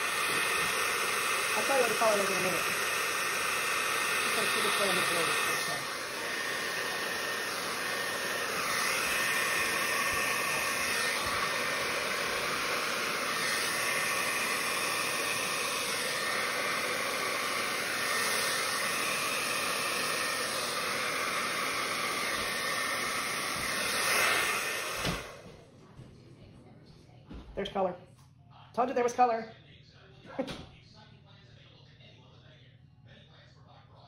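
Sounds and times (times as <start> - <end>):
hair dryer blowing: 0.0 - 25.6.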